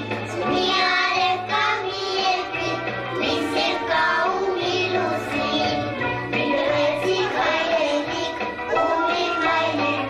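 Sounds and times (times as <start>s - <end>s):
children singing into microphone: 0.0s - 10.0s
instrumental music: 0.0s - 10.0s.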